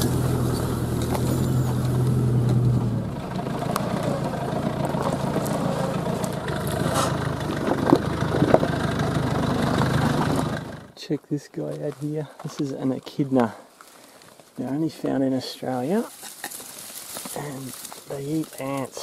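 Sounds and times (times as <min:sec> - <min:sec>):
rocks and brush scraping vehicle: 0:00.0 - 0:10.9, 0:11.5 - 0:19.0
off-road vehicle engine running: 0:00.0 - 0:11.0, 0:15.6 - 0:19.0.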